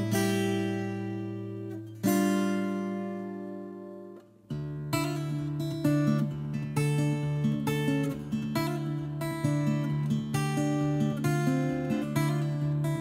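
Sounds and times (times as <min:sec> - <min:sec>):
acoustic guitar chords ringing: 0:00.0 - 0:13.0.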